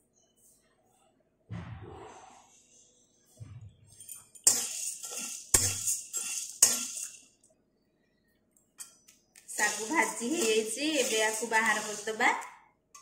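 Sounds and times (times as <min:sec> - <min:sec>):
metal spatula scraping pan: 0:03.9 - 0:07.3, 0:09.5 - 0:12.6
sago pearls rattling in pan: 0:04.1 - 0:07.3, 0:09.5 - 0:12.4
spatula striking pan: 0:04.4 - 0:07.2, 0:09.5 - 0:12.5.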